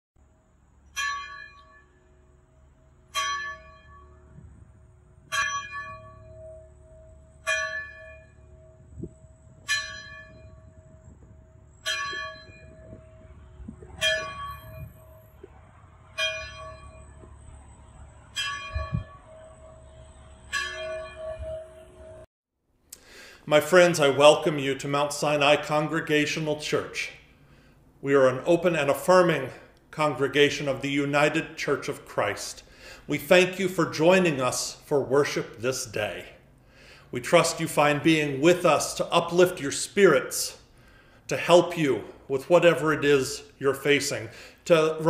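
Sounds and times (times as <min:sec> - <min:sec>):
church bell tolling: 0:00.8 - 0:15.5, 0:16.2 - 0:17.5, 0:18.3 - 0:22.3.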